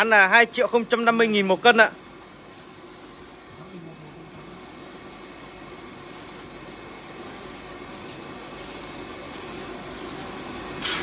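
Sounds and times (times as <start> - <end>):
steady background hum: 0.0 - 11.0
aluminium foil crinkling: 6.0 - 11.0.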